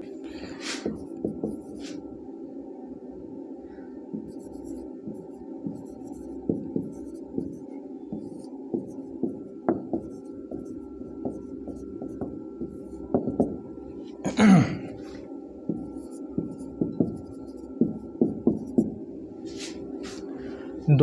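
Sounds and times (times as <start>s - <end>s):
low room hum: 0.0s - 21.0s
marker pen writing on whiteboard: 0.5s - 2.0s, 4.1s - 13.7s, 14.9s - 20.2s.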